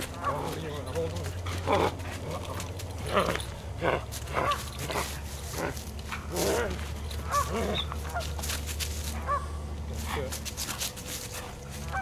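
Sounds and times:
dog whining: 0:06.4 - 0:08.0.

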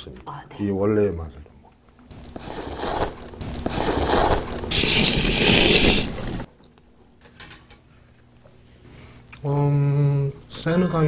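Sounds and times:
man slurping noodles: 0:02.3 - 0:06.5.

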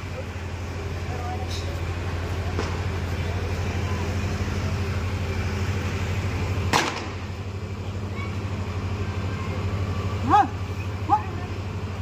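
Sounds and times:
low pulsing mechanical hum: 0:00.0 - 0:12.0
sharp crack: 0:06.7 - 0:07.3.

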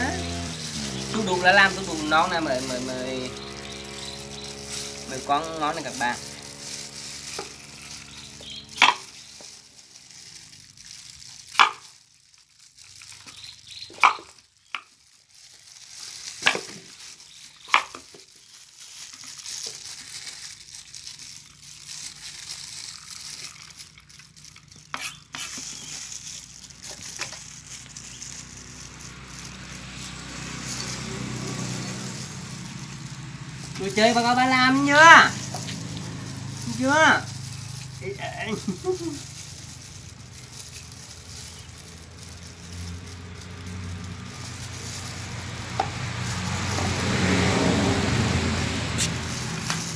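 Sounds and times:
knife scraping fruit: 0:18.8 - 0:31.2.

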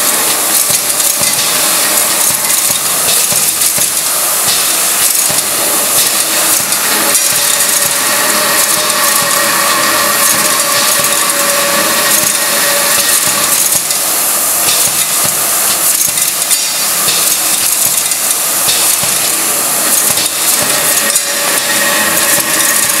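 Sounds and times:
machine hum: 0:00.0 - 0:23.0
screws and nuts clattering: 0:00.0 - 0:23.0.

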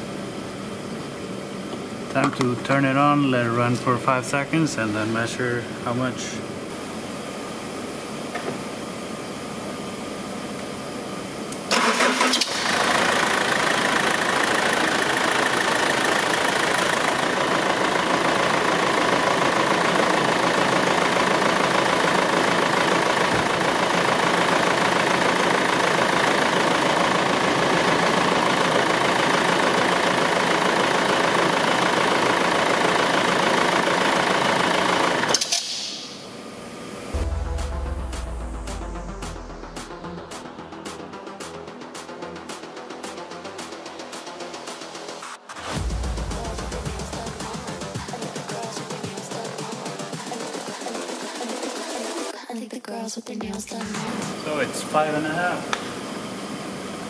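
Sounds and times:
starter cranking engine: 0:11.7 - 0:23.8
diesel engine idling: 0:11.8 - 0:35.3, 0:37.2 - 0:41.2, 0:45.6 - 0:48.4.

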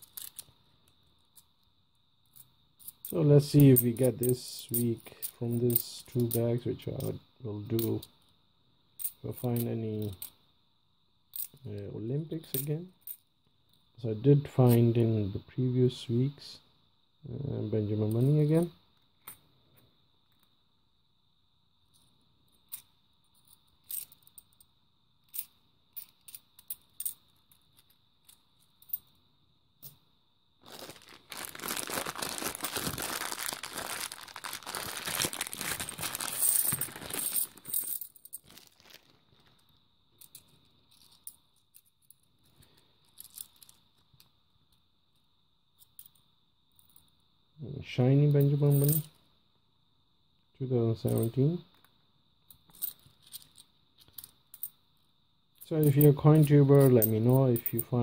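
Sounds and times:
coins clinking: 0:00.0 - 0:00.5, 0:30.7 - 0:38.9, 0:48.7 - 0:49.1
plastic bag tearing and crinkling: 0:30.6 - 0:37.7, 0:38.4 - 0:39.4.

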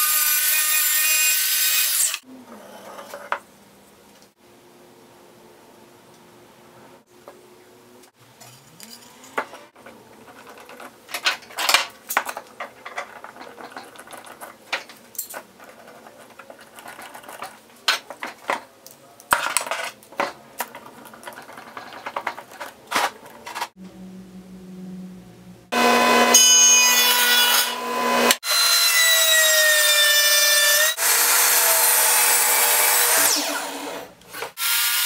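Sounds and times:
metal clamps clattering and clinking: 0:08.4 - 0:18.6.

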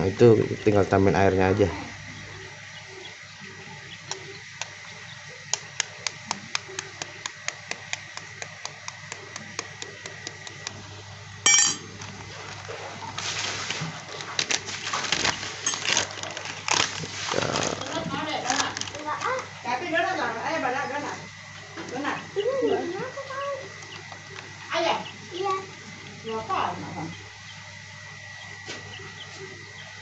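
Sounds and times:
spoon tapping eggshell: 0:05.5 - 0:10.8
high ringing clink: 0:11.4 - 0:11.9
scraping and rustling: 0:11.9 - 0:19.3.

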